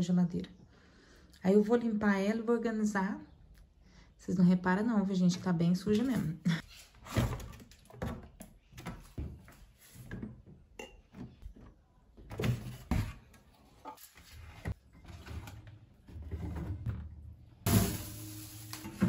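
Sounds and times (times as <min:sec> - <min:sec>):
bottles and dishes clinking: 0:10.7 - 0:11.3.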